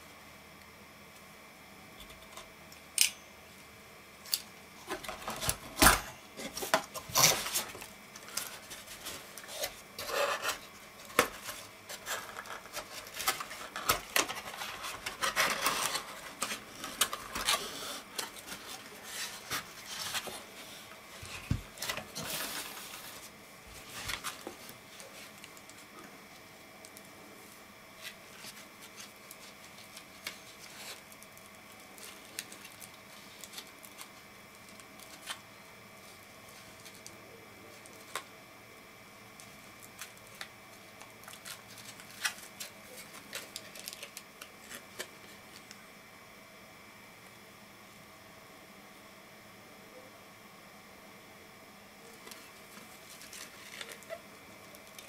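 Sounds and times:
cardboard box rustling and scraping: 6.4 - 25.2.

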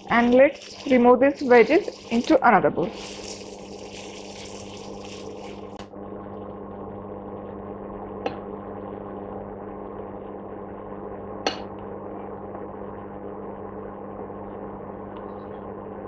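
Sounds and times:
vegetables scraped into bowl: 0.0 - 5.8
low hum: 0.0 - 16.0.

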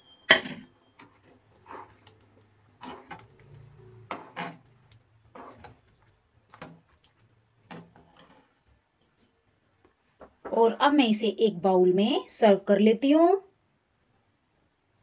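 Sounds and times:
ladle scraping a pot: 0.4 - 8.6.

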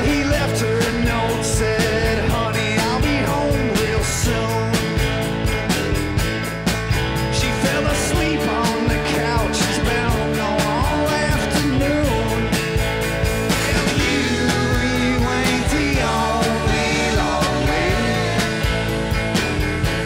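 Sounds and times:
drums on a steady beat: 0.0 - 20.0
live rock band playing: 0.0 - 20.0
pitch-bending lead melody: 4.5 - 20.0.

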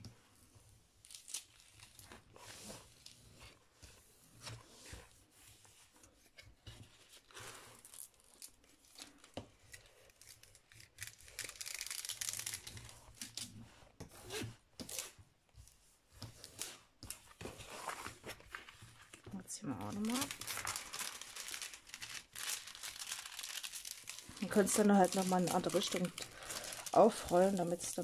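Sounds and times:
film crackling and crinkling: 1.0 - 5.1, 5.9 - 13.7, 14.8 - 28.0
protective film peeling off: 19.8 - 28.0.

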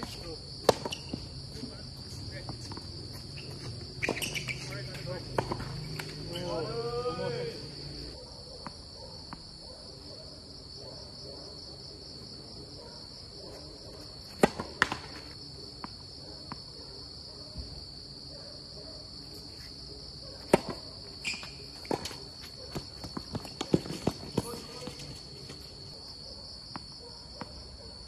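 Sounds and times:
tennis balls popping off rackets: 0.0 - 1.4, 2.4 - 6.6, 14.3 - 16.0
crickets chirping: 0.0 - 28.0
balls bouncing on hard court: 0.1 - 1.7, 2.4 - 6.6, 20.5 - 25.2.

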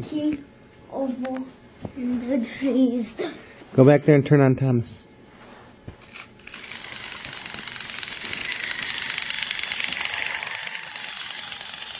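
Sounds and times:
toy motor buzzing rattle: 6.0 - 11.9.

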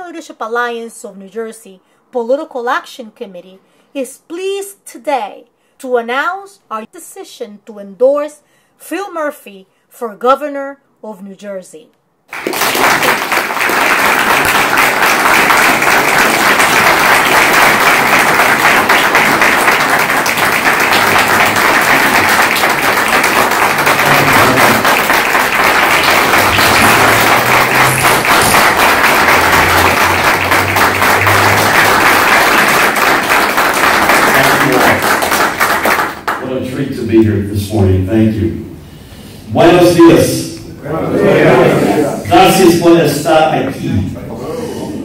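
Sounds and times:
crowd applauding: 12.3 - 36.6.

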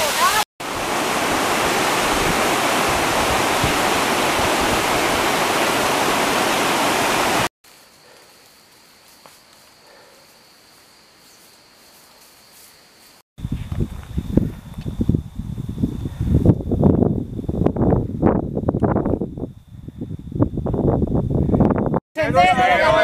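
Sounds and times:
mountain stream rushing over rocks: 0.0 - 7.5
quiet woodland background: 7.6 - 21.8.

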